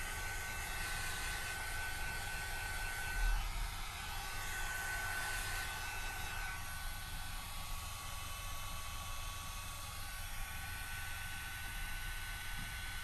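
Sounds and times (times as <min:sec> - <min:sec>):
high motor whine: 0:00.0 - 0:09.0
hair dryer blowing: 0:00.0 - 0:13.0.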